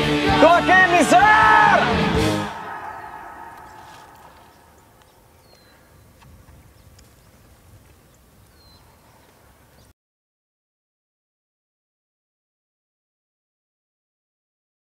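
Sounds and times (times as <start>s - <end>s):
music: 0.0s - 2.7s
faint clicks: 3.5s - 9.9s.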